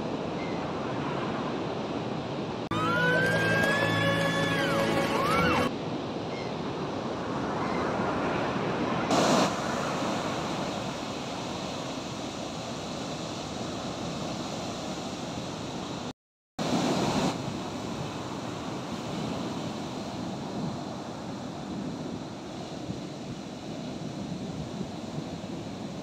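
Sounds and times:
surf breaking on beach: 8.0s - 15.1s, 16.6s - 26.0s.

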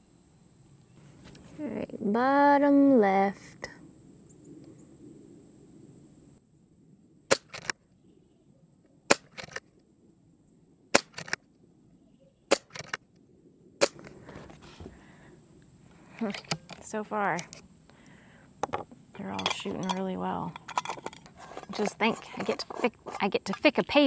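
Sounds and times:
air rifle shots: 7.3s - 7.7s.

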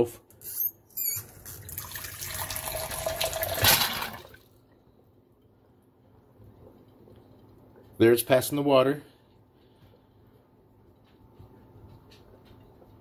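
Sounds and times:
squeaks and clicks: 0.3s - 1.6s
water gushing into a cup: 1.4s - 4.5s.

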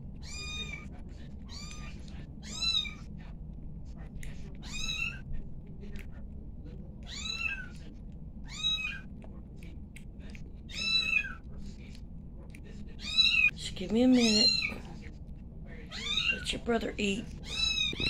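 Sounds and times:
kitten mewing: 0.2s - 0.9s, 4.6s - 5.2s, 7.0s - 7.8s, 8.4s - 9.1s, 15.9s - 16.4s, 17.4s - 18.0s.

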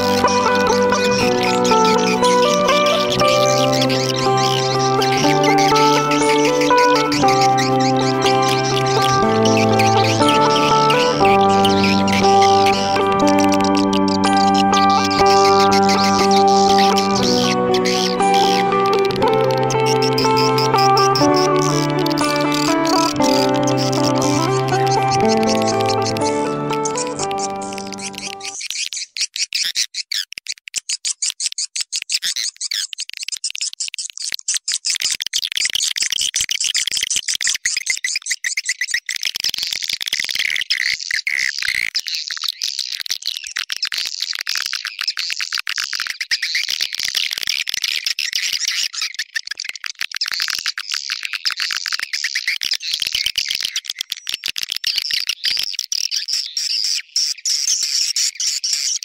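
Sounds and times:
high-pitched swiftlet chirps: 0.0s - 28.6s.

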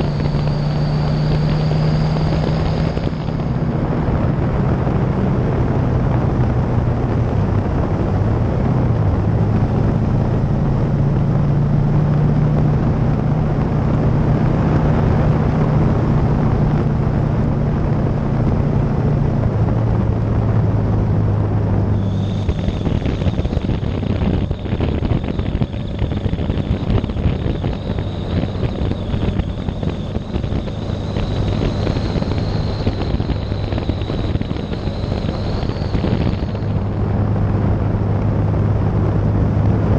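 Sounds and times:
high steady whine: 0.0s - 39.9s
motorcycle engine running: 0.0s - 39.9s
wind rushing over microphone: 0.0s - 39.9s.

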